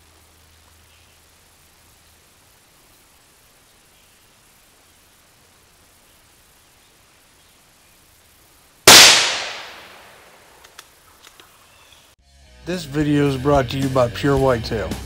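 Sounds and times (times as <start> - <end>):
shotgun blast echoing: 8.9 - 10.5
faint clicks: 10.6 - 11.6.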